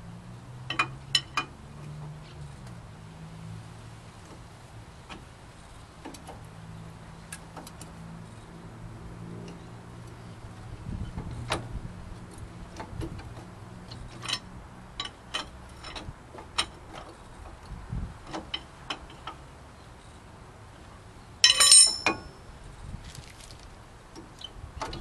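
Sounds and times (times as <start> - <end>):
metallic clatter: 21.4 - 22.4.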